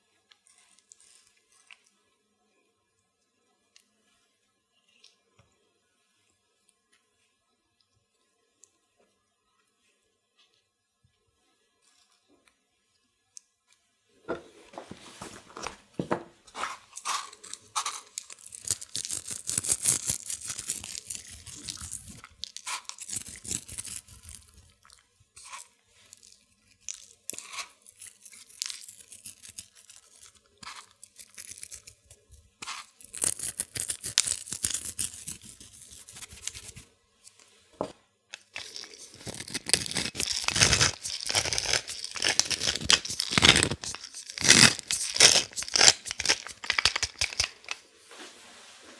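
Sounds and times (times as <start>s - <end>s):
salt sprinkling: 16.6s - 32.0s, 32.6s - 36.8s, 38.4s - 47.8s
pepper mill grinding: 16.6s - 36.8s, 38.3s - 47.8s.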